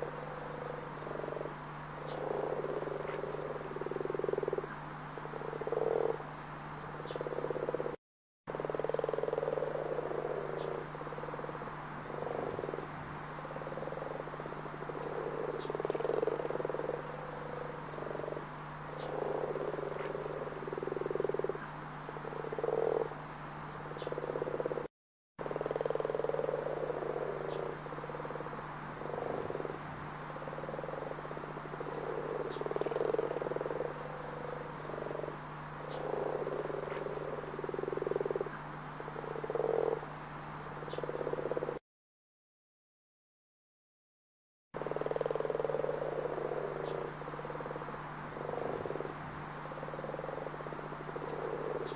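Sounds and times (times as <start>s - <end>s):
frogs croaking: 0.0s - 41.8s, 44.8s - 51.9s
low steady hum: 44.8s - 51.9s.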